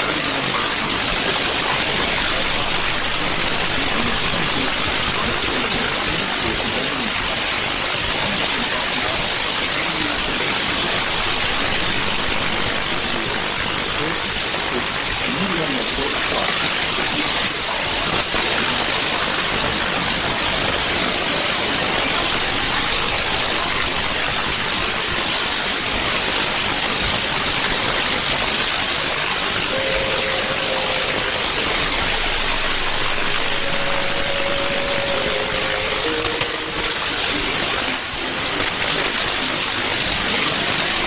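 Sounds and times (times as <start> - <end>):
radio static hiss: 0.0 - 41.0
faint steady whistle: 29.6 - 38.8.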